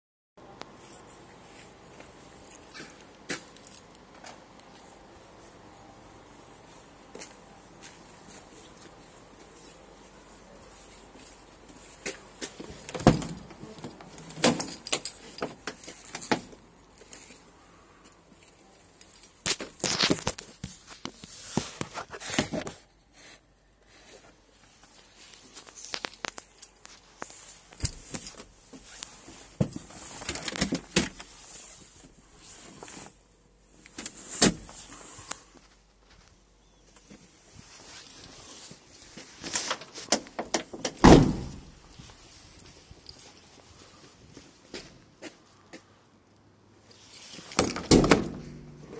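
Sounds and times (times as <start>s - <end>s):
keys jangling: 13.2s - 17.4s.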